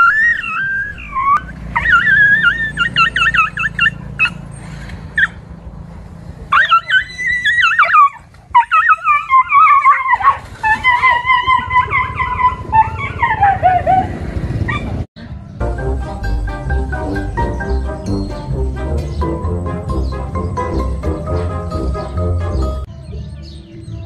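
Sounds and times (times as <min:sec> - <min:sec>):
dog whining and yipping: 0:00.0 - 0:05.4, 0:06.5 - 0:15.0.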